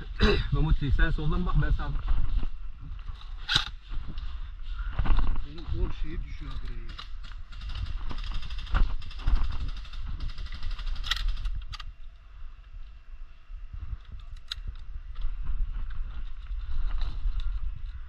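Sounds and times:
sharp clicks: 6.5 - 11.9.

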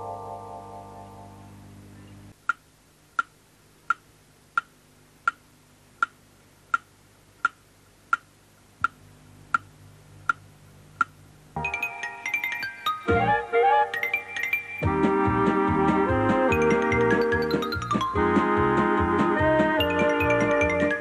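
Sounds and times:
clock ticking: 3.2 - 5.4, 6.0 - 9.7
music with bell-like notes: 11.6 - 15.8, 16.5 - 18.4, 19.8 - 21.0.

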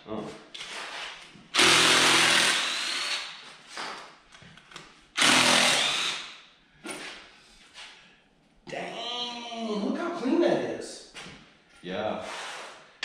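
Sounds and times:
cordless drill whining: 1.6 - 3.3, 5.2 - 6.3.

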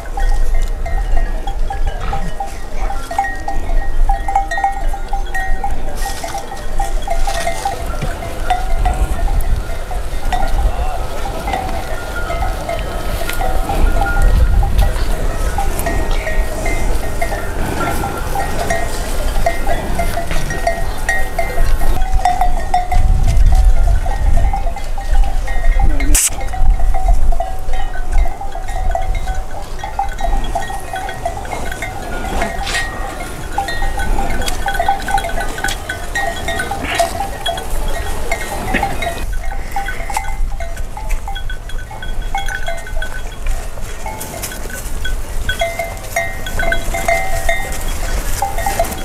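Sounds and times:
animal bells clinking: 0.0 - 49.0
goats and sheep bleating: 30.5 - 37.5.

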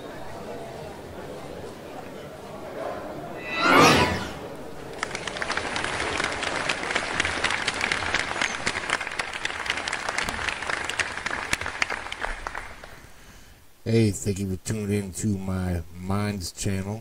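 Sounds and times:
audience applause: 4.5 - 13.0.

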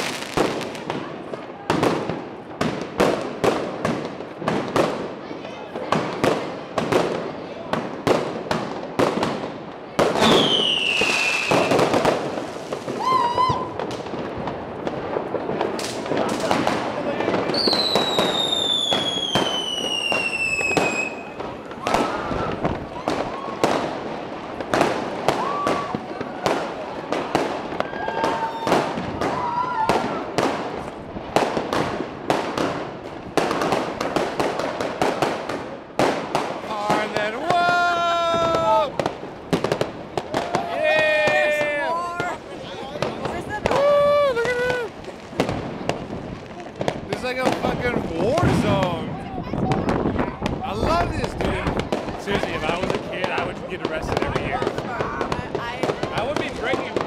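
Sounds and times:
fireworks banging: 0.0 - 57.0
firework whistle falling in pitch: 13.0 - 13.8.

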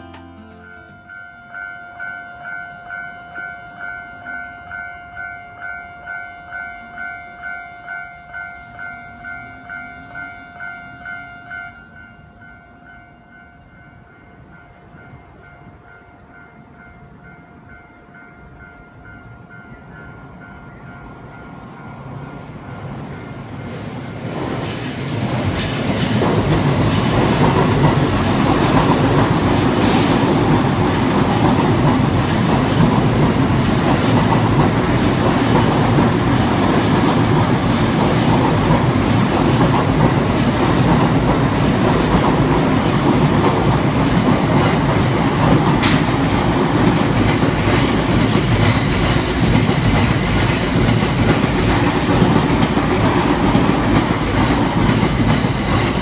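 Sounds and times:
train wheels rumbling: 18.4 - 56.0
clickety-clack over rail joints: 22.4 - 56.0.

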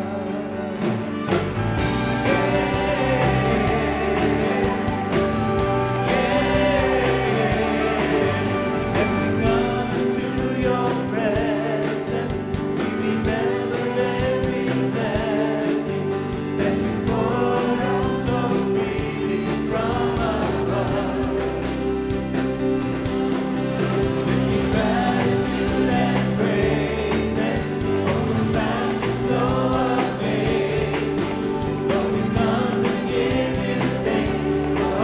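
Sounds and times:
acoustic guitar: 0.0 - 35.0
drums: 0.0 - 35.0
singers in harmony: 0.0 - 35.0
saxophones: 1.1 - 10.8.

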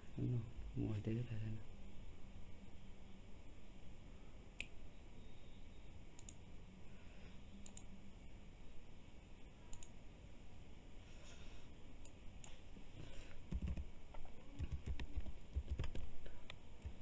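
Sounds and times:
low room hum: 0.0 - 17.0
computer mouse clicks: 6.2 - 6.4, 7.6 - 7.9, 9.7 - 10.0, 13.5 - 17.0.

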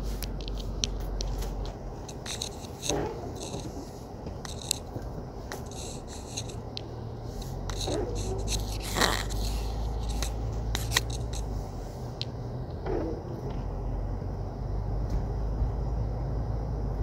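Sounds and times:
sharp clicks and scrapes: 0.0 - 13.1
vehicle engine humming: 0.0 - 17.0.

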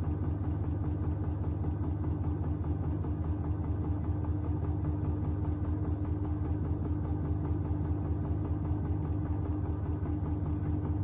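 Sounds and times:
washing machine drum spinning: 0.0 - 11.0.

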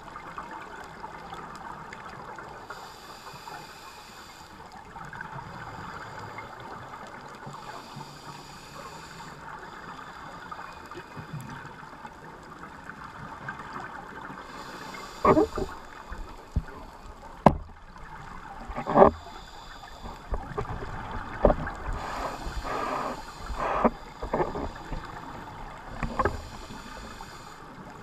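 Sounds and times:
underwater crackling hiss: 0.1 - 28.0
scuba regulator hissing: 14.5 - 15.8, 22.0 - 25.0.

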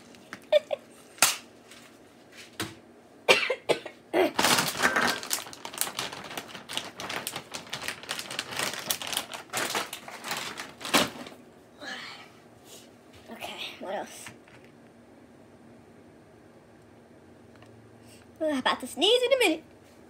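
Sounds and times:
seasoning packet rustling: 4.4 - 11.3.

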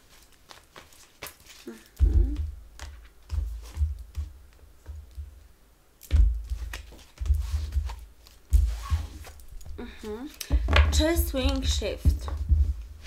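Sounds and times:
cards shuffling: 0.0 - 2.0
dull thumps: 2.0 - 5.4, 6.0 - 9.8, 10.5 - 13.0.

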